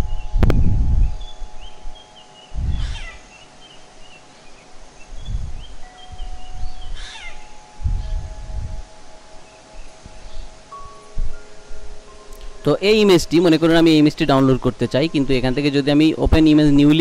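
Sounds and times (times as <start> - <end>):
dull low thumps: 0.0 - 3.1, 5.1 - 12.7
animal crying: 2.8 - 3.3, 6.9 - 7.5.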